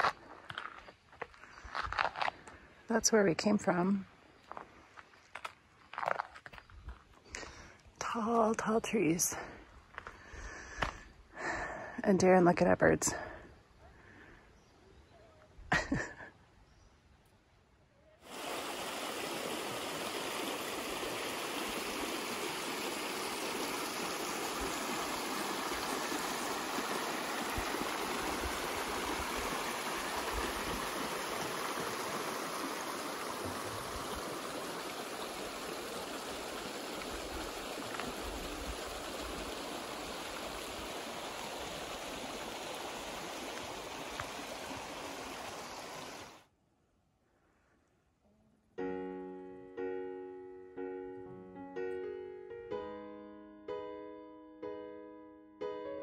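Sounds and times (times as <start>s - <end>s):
creek running water: 18.2s - 46.5s.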